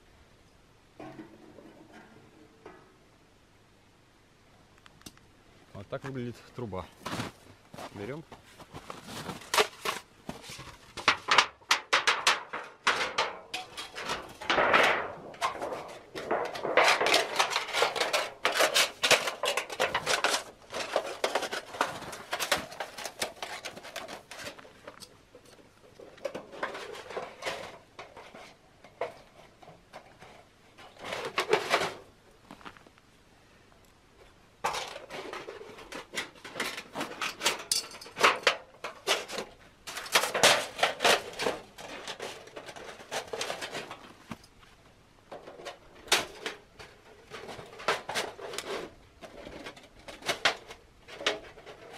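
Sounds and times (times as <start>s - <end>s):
sheet metal rattling and clinking: 11.0s - 28.3s, 34.6s - 44.0s.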